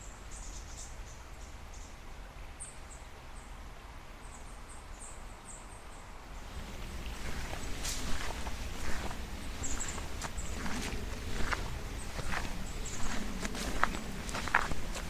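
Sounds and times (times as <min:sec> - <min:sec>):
small bird chirping: 0:00.0 - 0:02.0, 0:06.8 - 0:14.7
forest background: 0:00.0 - 0:15.0
footsteps on earthy trail: 0:06.5 - 0:15.0.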